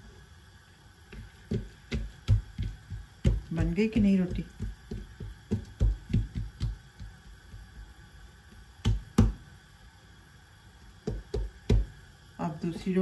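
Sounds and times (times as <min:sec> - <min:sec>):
rolling pin knocking on a board: 0:01.2 - 0:07.2, 0:08.8 - 0:09.4, 0:11.0 - 0:11.9.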